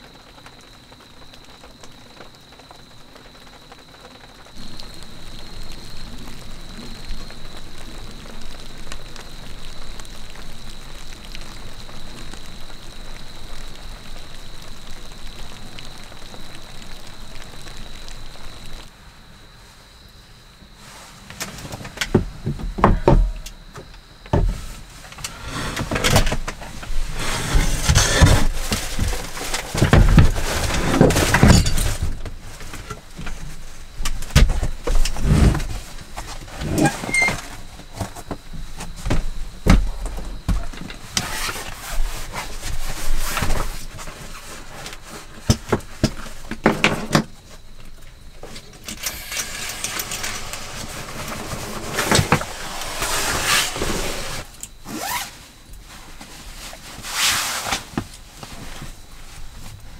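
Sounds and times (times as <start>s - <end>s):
rustling and soft thuds: 20.7s - 47.8s
wooden table knocks and thumps: 22.1s - 23.4s.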